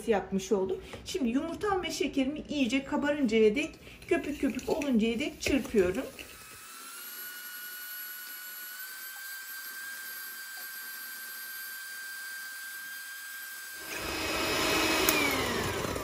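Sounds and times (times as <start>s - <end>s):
electric hand mixer whine: 4.5s - 16.0s.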